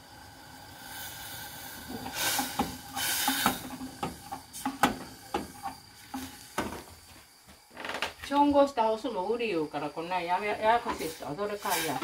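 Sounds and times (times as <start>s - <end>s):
hissing bursts: 0.8s - 6.5s, 10.9s - 12.0s.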